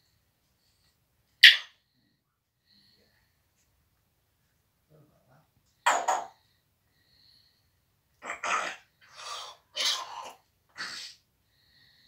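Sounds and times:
parrot harsh call: 0:01.4 - 0:01.8, 0:08.2 - 0:11.2.

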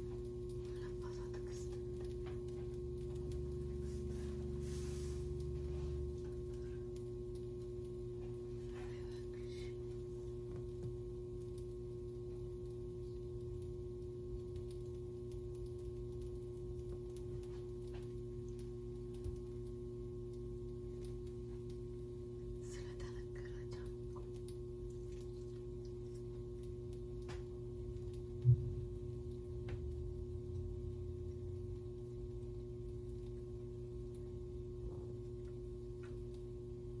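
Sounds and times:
electrical hum with steady tone: 0:00.0 - 0:37.0
deep rumble: 0:17.8 - 0:35.7.

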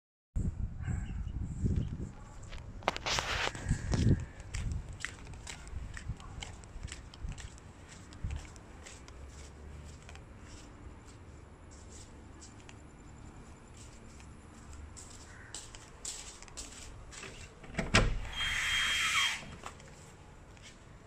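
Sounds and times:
door ticks and shuffling: 0:17.0 - 0:18.5.

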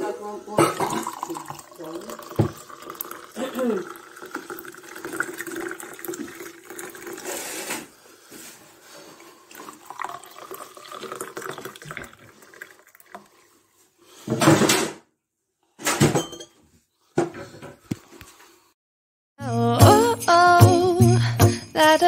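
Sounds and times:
liquid pouring into teacups: 0:00.6 - 0:07.7, 0:09.0 - 0:13.5.

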